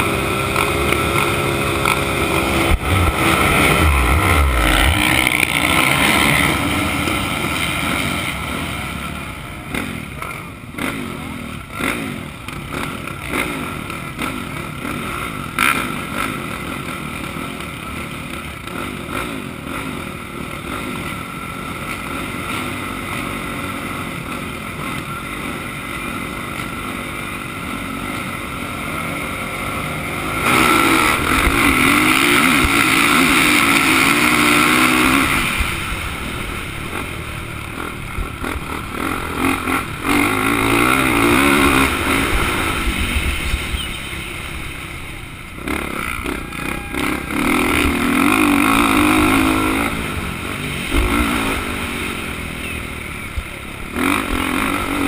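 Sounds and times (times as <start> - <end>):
motocross bikes revving: 0.0 - 55.0.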